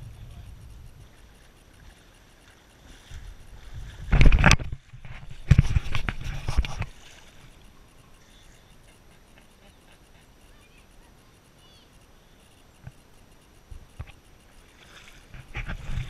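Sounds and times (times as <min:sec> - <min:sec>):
faint river hiss: 0:00.0 - 0:16.0
water knocking and splashing: 0:01.8 - 0:07.5
faint chirp: 0:07.2 - 0:14.8.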